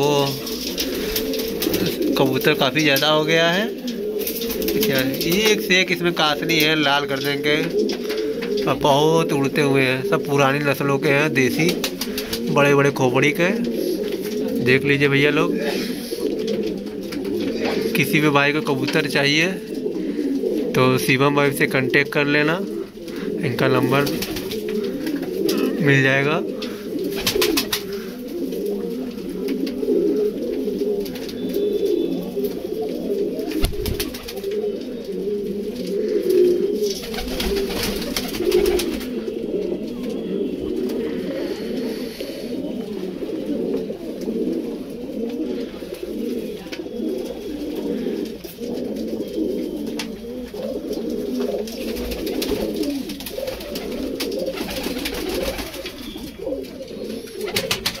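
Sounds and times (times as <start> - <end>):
pigeons cooing: 0.0 - 58.0.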